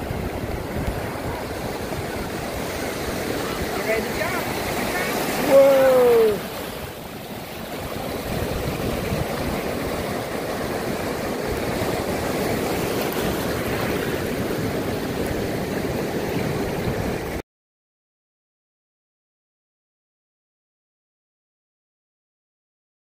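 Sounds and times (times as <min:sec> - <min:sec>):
surf washing over sand: 0:00.0 - 0:17.4.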